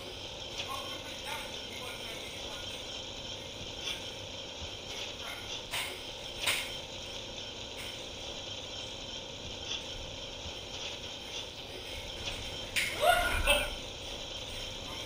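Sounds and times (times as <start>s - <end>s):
kitchen machinery whine and rattle: 0.0s - 15.0s.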